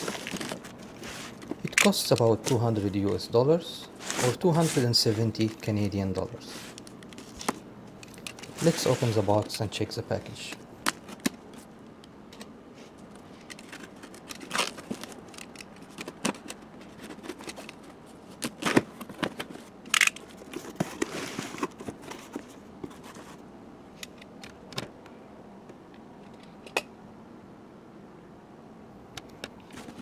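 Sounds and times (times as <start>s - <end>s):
cardboard flaps and paper rustling: 0.0s - 3.3s, 4.0s - 5.7s, 8.5s - 9.6s
packing tape slit and torn: 13.4s - 21.1s.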